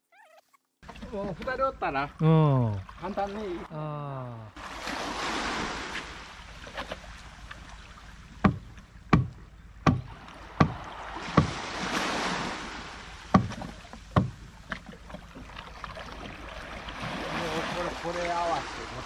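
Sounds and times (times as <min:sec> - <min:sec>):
water washing: 0:00.8 - 0:03.8, 0:04.6 - 0:19.0
sharp wooden knocks: 0:08.4 - 0:11.6, 0:13.3 - 0:15.2.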